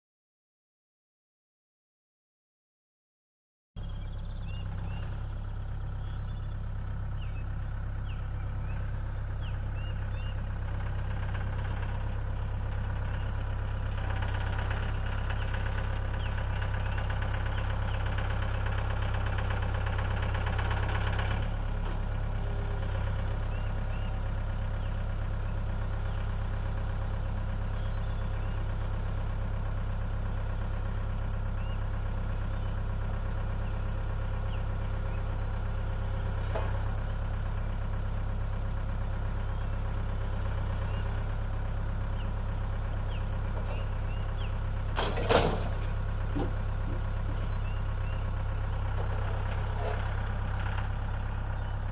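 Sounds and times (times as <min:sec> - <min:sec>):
tractor engine running: 0:03.8 - 0:51.9.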